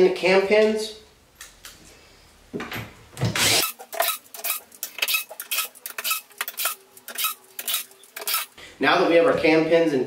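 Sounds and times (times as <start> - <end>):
cordless drill driving screws: 3.4 - 8.5.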